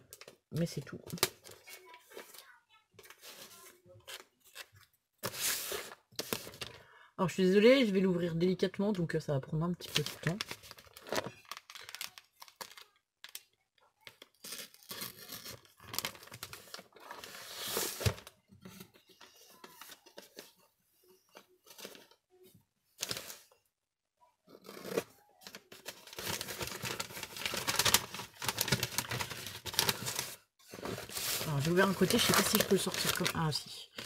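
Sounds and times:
paper rustling and tearing: 1.1 - 6.7, 14.1 - 20.6, 24.6 - 34.0.

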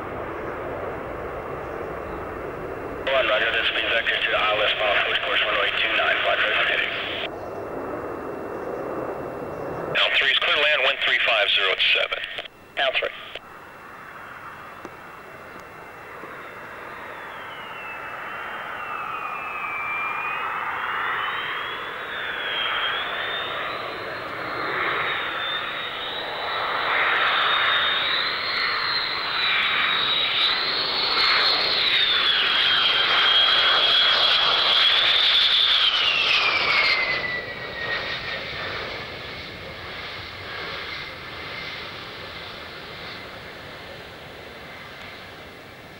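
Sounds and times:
jet engines whining: 0.0 - 45.9.

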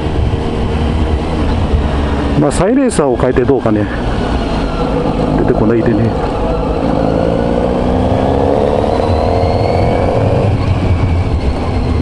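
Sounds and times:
motorcycle engine accelerating: 4.0 - 12.0.

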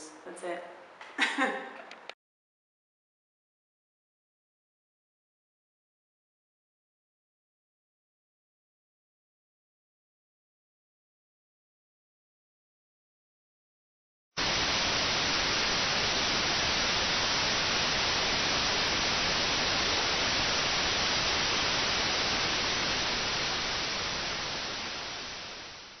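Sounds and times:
tv static hiss: 14.4 - 26.0.

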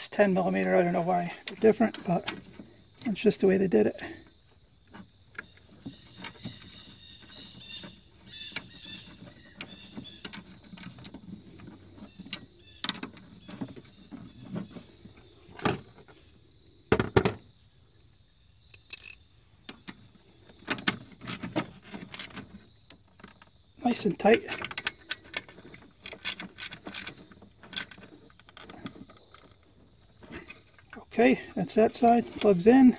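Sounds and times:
hand tools clicking and knocking: 24.2 - 29.6.

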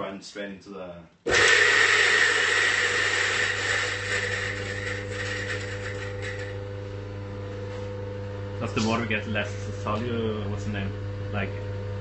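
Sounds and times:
coffee grinder grinding beans: 1.3 - 6.7.

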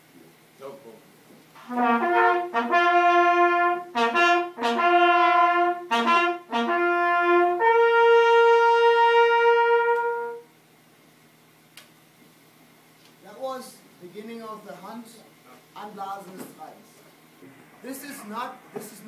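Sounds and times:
brass hunting horns playing: 1.6 - 10.6.

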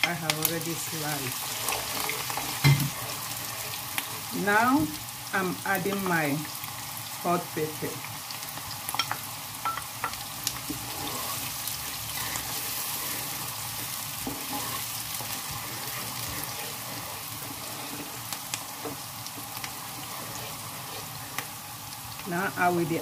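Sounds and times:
onion sizzling in hot oil: 0.0 - 23.0
wooden spoon stirring: 1.2 - 4.3, 8.9 - 22.2
spoon knocking against pan: 9.0 - 10.2.

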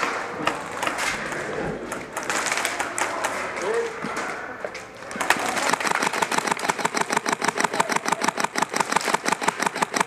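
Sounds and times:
airsoft gun rapid shots: 5.2 - 10.0.

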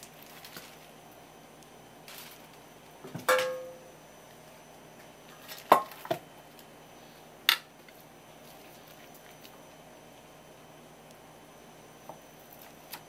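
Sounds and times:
sharp click of tray: 3.2 - 3.8.

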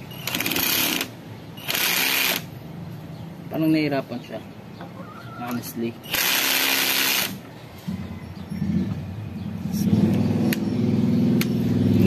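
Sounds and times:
cordless drill driving screw: 6.1 - 7.4.

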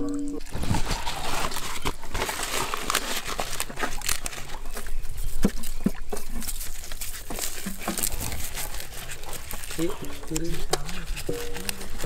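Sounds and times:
crinkling and rustling: 0.4 - 12.0.

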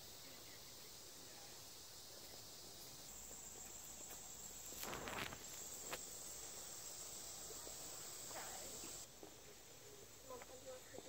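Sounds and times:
high-pitched insect chorus: 0.0 - 11.0
scuffing rustle: 3.6 - 6.1.

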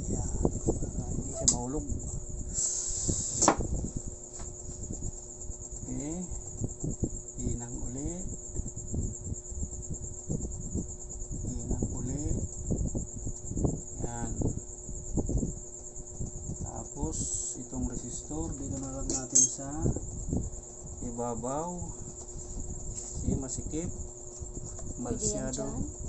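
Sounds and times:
high-pitched insect trilling: 0.0 - 26.0
short hiss: 2.5 - 3.6.

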